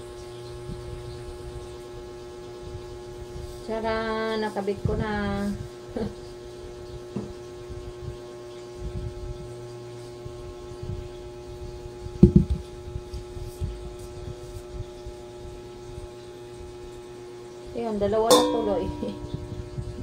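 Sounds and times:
low electrical hum: 0.0 - 20.0
woks knocking: 18.3 - 20.0.

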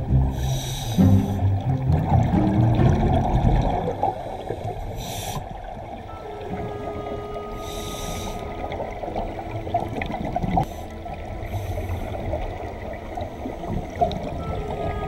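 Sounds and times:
underwater bubbling of exhaled air: 0.0 - 15.0
hissing breaths through regulator: 0.2 - 1.6, 4.2 - 5.7, 7.5 - 8.8, 10.5 - 14.4.

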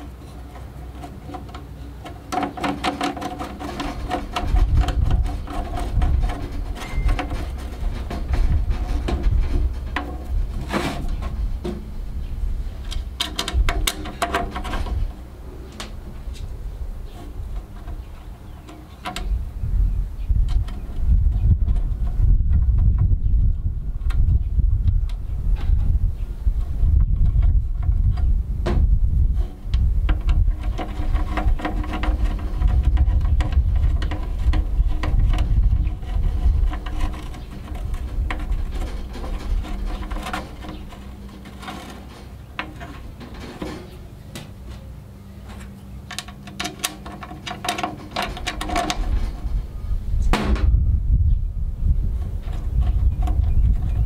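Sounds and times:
metal clinks and scrapes: 0.0 - 11.4, 30.2 - 49.8
steady low rumble: 3.8 - 54.0.

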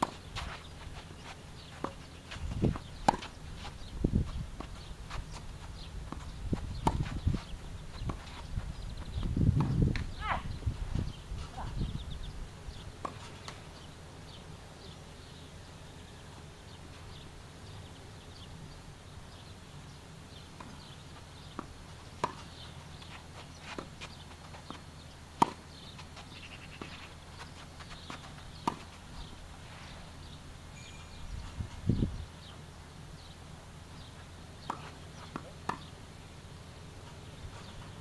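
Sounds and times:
tennis balls struck by rackets: 0.0 - 10.2, 20.3 - 29.3, 34.0 - 36.2
low background noise: 0.0 - 38.0.

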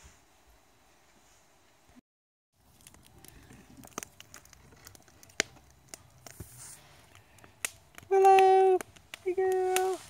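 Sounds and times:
wood fire crackling and popping: 2.6 - 10.0.

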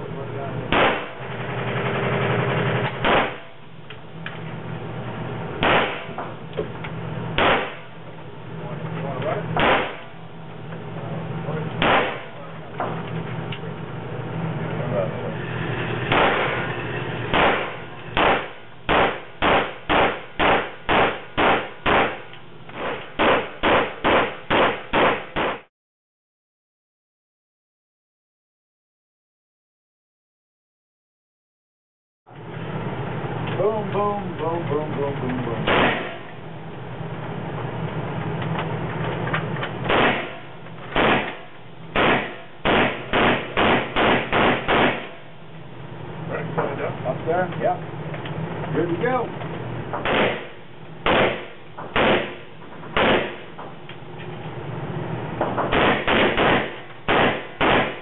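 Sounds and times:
pistol shots echoing indoors: 0.7 - 1.2, 3.0 - 3.6, 5.6 - 6.2, 7.4 - 8.0, 9.6 - 10.2, 11.8 - 12.4, 16.1 - 16.7, 17.3 - 25.7, 35.7 - 36.3, 39.9 - 45.3, 50.0 - 53.6, 55.7 - 58.0.

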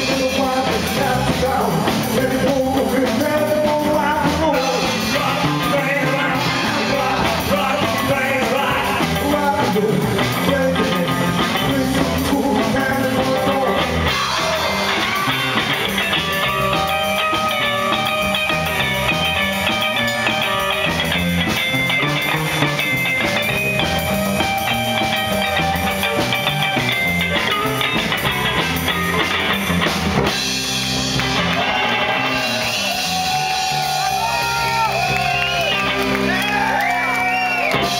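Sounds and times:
person singing: 0.0 - 18.7
electric guitar lead: 0.0 - 37.9
rockabilly band playing live: 0.0 - 37.9.

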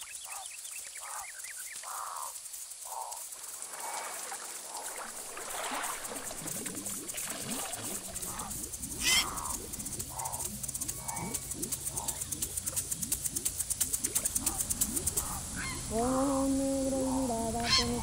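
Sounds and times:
waterbird calls: 0.0 - 18.0
quick rising chirps: 3.5 - 16.0
low steady hum: 5.0 - 18.0.

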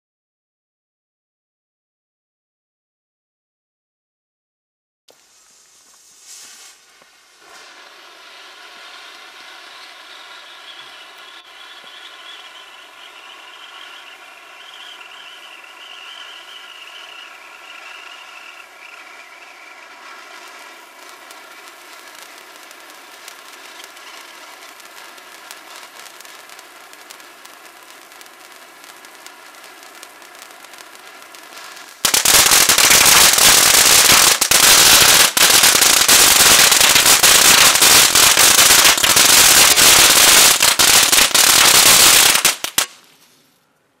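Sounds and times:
hiss of spraying sparks: 5.1 - 43.2
firework dense crackling: 5.1 - 43.8.

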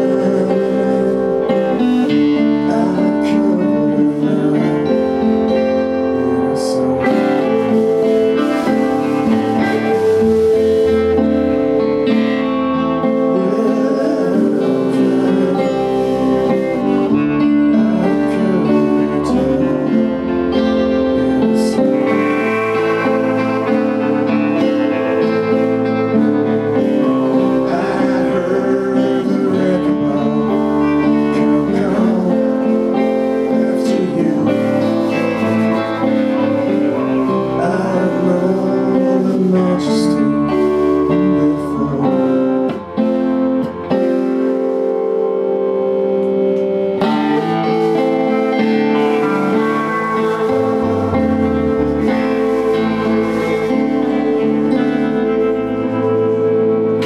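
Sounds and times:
man singing: 0.0 - 44.4, 47.0 - 57.0
strummed acoustic guitars: 0.0 - 57.0
plucked double bass: 47.0 - 57.0.

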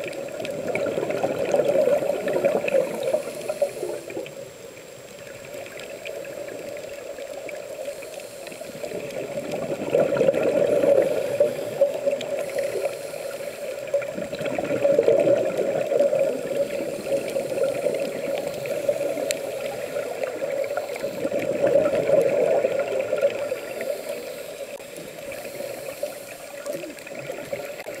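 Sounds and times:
underwater regulator bubbles rushing: 0.0 - 4.3, 8.6 - 26.0.

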